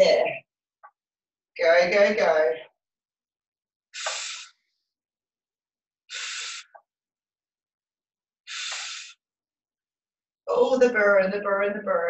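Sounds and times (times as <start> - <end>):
woman breathing hard: 4.0 - 4.6, 6.1 - 6.8, 8.5 - 9.2.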